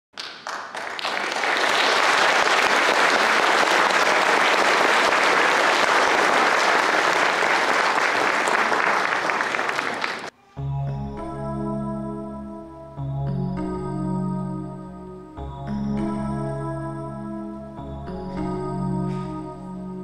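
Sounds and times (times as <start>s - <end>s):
audience applauding: 0.1s - 10.4s.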